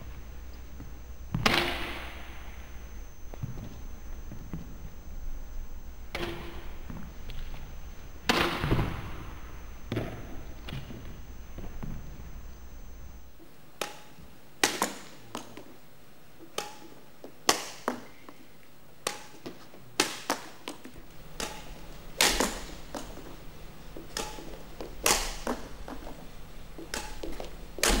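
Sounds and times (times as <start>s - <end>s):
rackets striking shuttlecocks: 0.1s - 13.0s, 21.2s - 28.0s.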